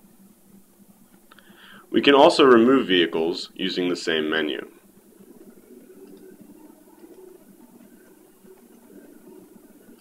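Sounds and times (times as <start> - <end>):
low hum: 0.0 - 10.0.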